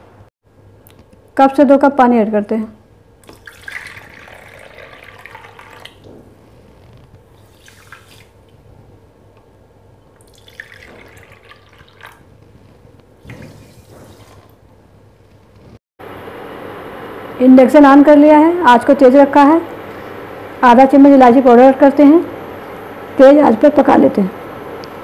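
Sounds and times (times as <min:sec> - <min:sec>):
water pouring and splashing: 0:03.2 - 0:06.3, 0:07.3 - 0:08.6, 0:10.2 - 0:12.4, 0:13.2 - 0:14.6.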